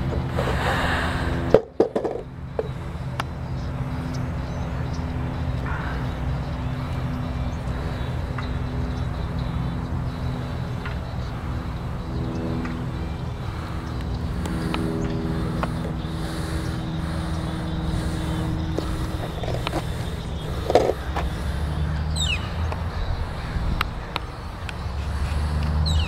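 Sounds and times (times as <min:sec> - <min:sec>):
faint hum: 0:00.0 - 0:26.0
steady low rumble: 0:00.0 - 0:26.0.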